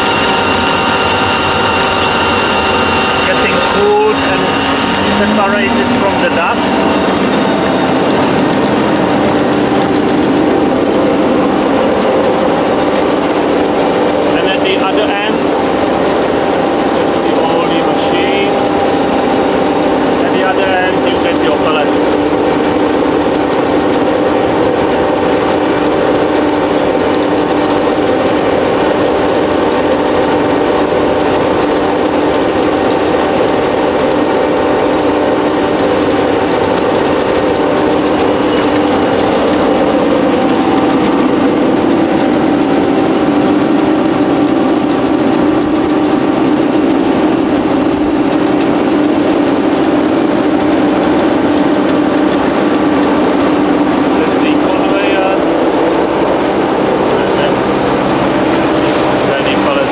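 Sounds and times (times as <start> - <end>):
pellet mill motors droning: 0.0 - 59.9.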